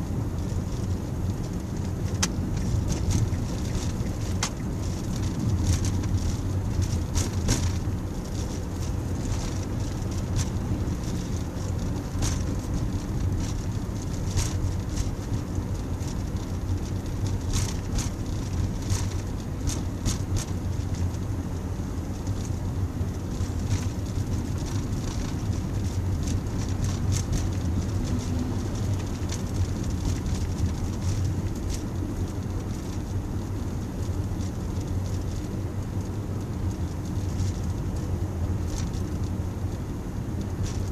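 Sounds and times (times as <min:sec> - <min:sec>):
car engine rumble: 0:00.0 - 0:40.9
tyres on the road: 0:00.0 - 0:40.9.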